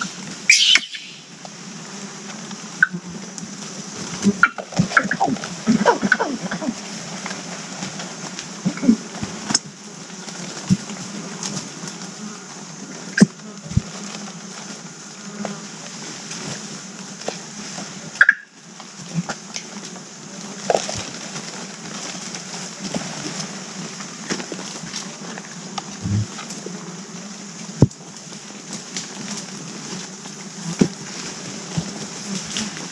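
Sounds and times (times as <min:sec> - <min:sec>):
insects droning and buzzing: 0:00.0 - 0:32.9
short animal calls: 0:00.5 - 0:01.3
snaps and rustles in leaf litter: 0:18.7 - 0:26.6, 0:27.8 - 0:32.9.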